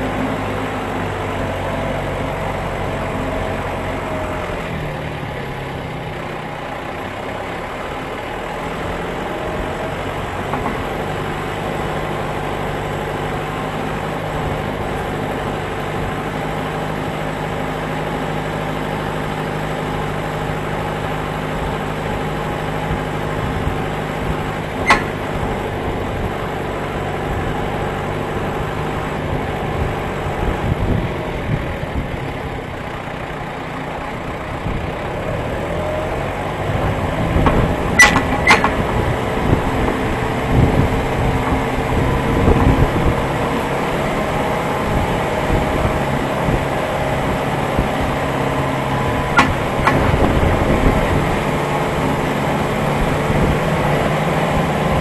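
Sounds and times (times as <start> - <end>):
tractor diesel engine running: 0.0 - 55.0
small knocks: 49.4 - 50.2.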